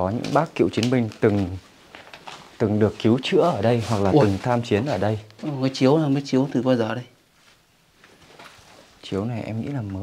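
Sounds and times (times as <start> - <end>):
faint footsteps scuffing: 0.1 - 6.2, 7.3 - 9.0.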